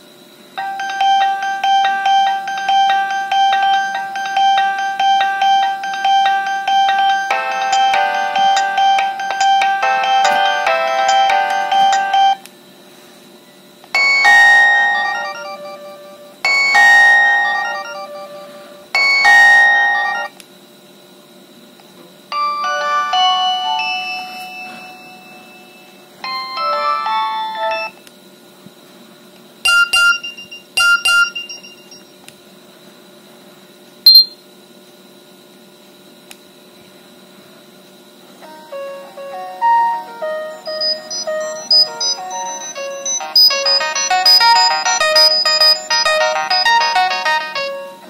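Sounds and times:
phone ringtone melodies: 0.6 - 12.4, 14.0 - 20.3, 22.3 - 27.9, 34.1 - 34.4, 38.5 - 48.0
brief chimes: 34.1 - 34.4
short click: 34.1 - 34.4.

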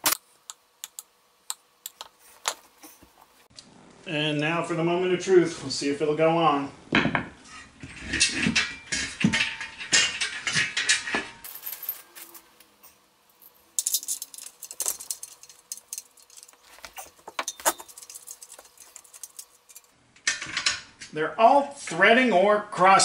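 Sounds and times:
metal bolts clinking and rattling: 8.2 - 20.7.

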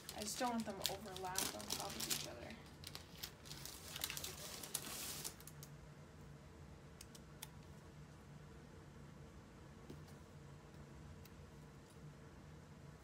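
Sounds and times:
paper crinkling and rustling: 0.0 - 5.7.

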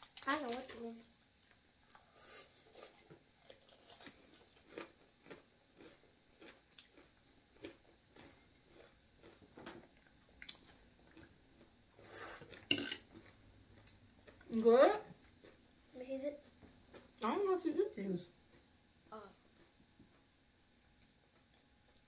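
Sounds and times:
chewing crispy food: 0.0 - 2.2, 2.8 - 15.6, 21.0 - 22.0.

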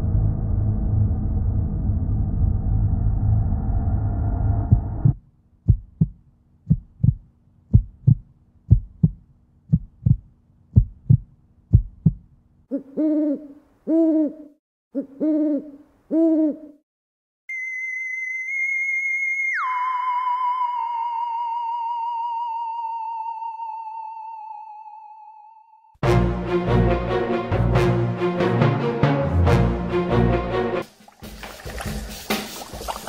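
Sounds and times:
low heartbeat thumps: 4.6 - 12.3
owl hoots: 12.7 - 16.8.

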